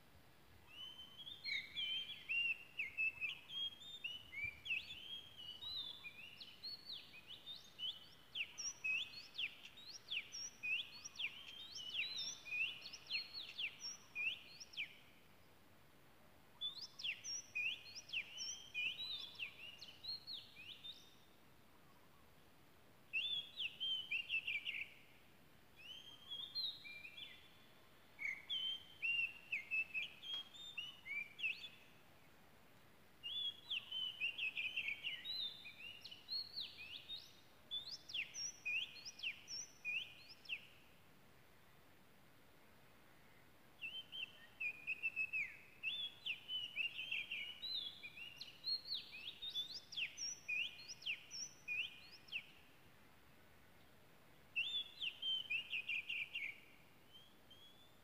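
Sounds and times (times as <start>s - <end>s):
bird whistles and trills: 0.7s - 15.0s, 16.6s - 21.2s, 25.8s - 27.6s, 28.2s - 31.9s, 33.3s - 40.8s, 43.8s - 52.6s, 54.6s - 58.0s.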